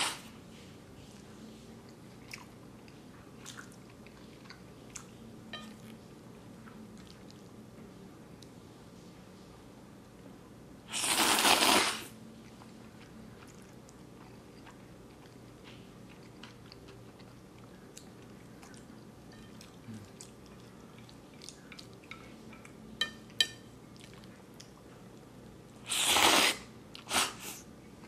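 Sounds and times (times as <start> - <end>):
quiet chewing: 0.5 - 8.6, 12.3 - 25.8
loud noodle slurp: 10.9 - 12.1, 25.9 - 27.4.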